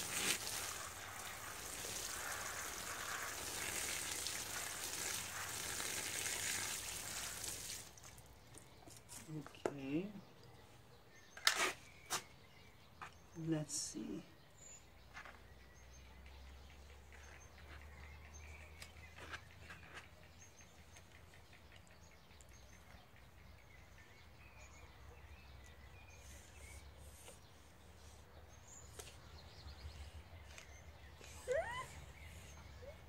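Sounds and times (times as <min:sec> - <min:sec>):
hands pressing compost: 0:00.0 - 0:09.3
faint bird chirps: 0:10.2 - 0:33.0.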